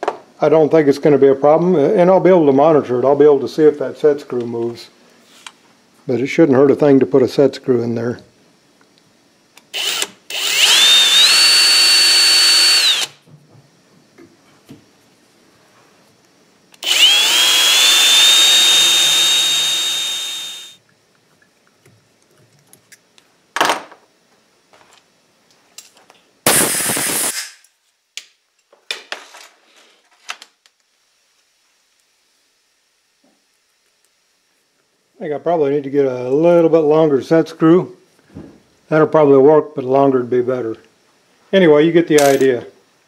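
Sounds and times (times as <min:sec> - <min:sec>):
cordless drill whining: 0:09.7 - 0:13.2, 0:16.8 - 0:20.8.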